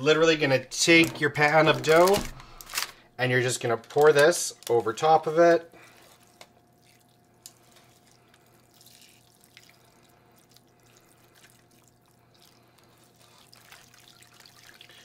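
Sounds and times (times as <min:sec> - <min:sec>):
faint trickle of sauce pouring: 0:06.2 - 0:15.0.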